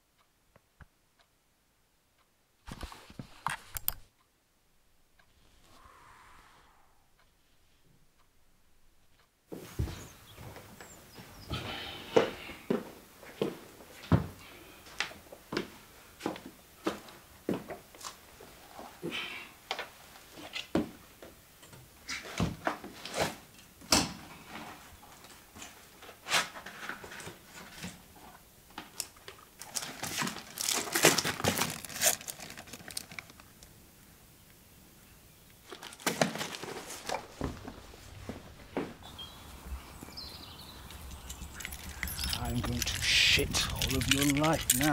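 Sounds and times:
packaging crinkling and rustling: 28.8s - 33.7s, 35.6s - 39.1s, 41.0s - 44.9s.

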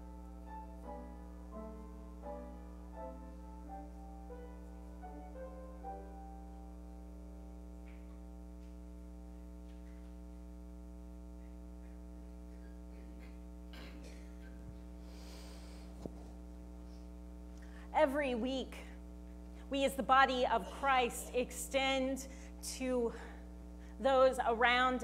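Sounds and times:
soft keyboard music: 0.0s - 8.9s.

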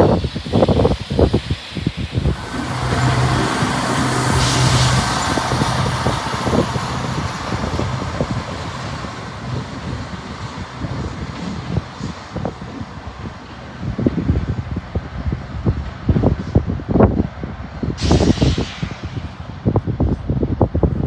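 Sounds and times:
train running past: 2.0s - 16.2s.

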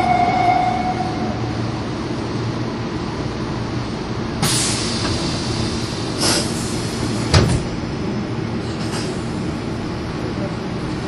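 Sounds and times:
train low rumble: 0.0s - 11.0s
train doors closing thud: 7.2s - 7.8s.

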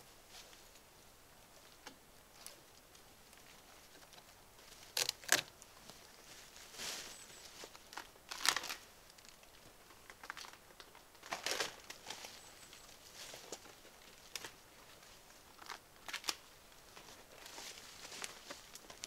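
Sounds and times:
bark tearing: 4.9s - 5.5s.

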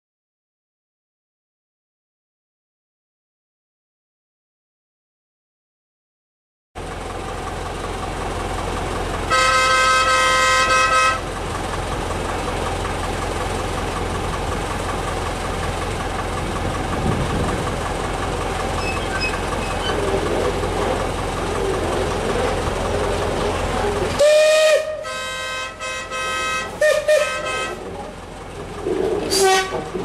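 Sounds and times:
steam locomotive whistle blast: 9.3s - 11.2s, 24.2s - 27.9s, 29.3s - 29.9s
low rumble: 11.3s - 30.0s.

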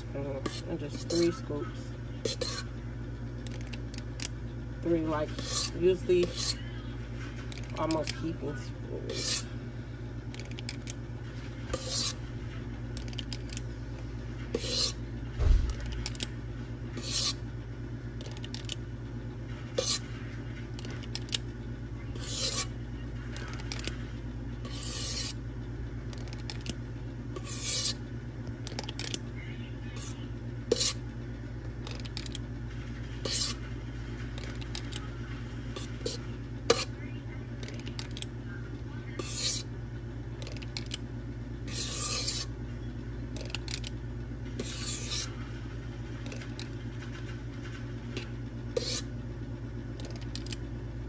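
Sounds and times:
ice cream scoop scraping bowl: 0.0s - 2.8s, 3.4s - 9.6s, 10.3s - 13.6s, 14.4s - 17.5s, 19.7s - 21.5s, 22.1s - 29.3s, 29.9s - 31.1s, 31.8s - 37.0s, 39.0s - 39.7s, 41.6s - 42.6s, 44.5s - 45.5s, 46.2s - 49.2s
steady low hum: 0.0s - 51.0s.

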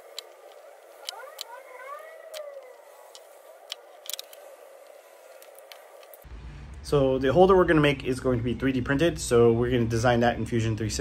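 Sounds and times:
faint wailing tone: 0.0s - 6.2s.

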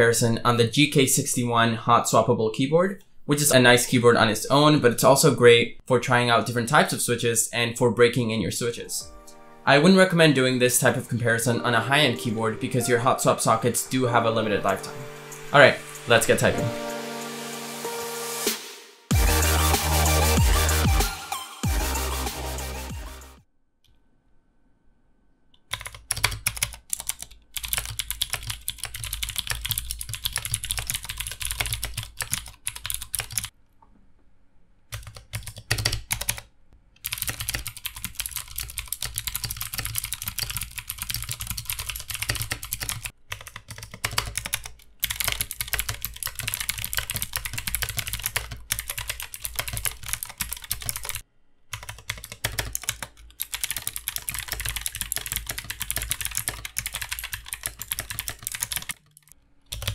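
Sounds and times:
fast typing on clicky keyboard: 25.7s - 33.5s, 34.9s - 59.9s.

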